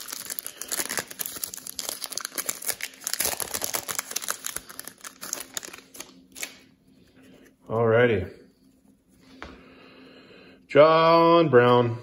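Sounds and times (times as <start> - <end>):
wrapper crinkling and tearing: 0.0 - 6.7.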